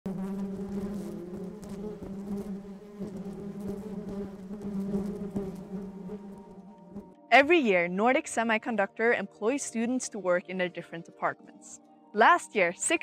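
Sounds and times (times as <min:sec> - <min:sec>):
honeybees buzzing: 0:00.1 - 0:07.3.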